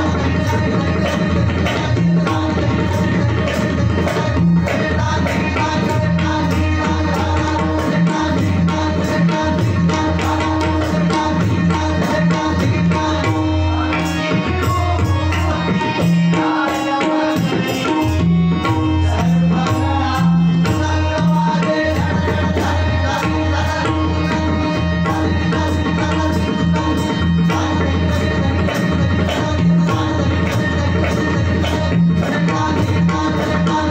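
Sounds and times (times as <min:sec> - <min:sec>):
held harmonium notes: 0:00.0 - 0:33.9
tabla playing lively rhythm: 0:00.0 - 0:33.9.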